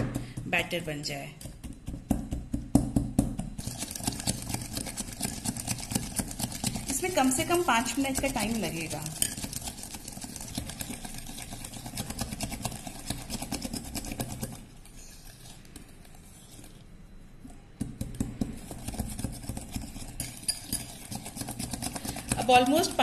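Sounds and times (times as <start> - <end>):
whisk clicking against glass bowl: 3.6 - 14.6.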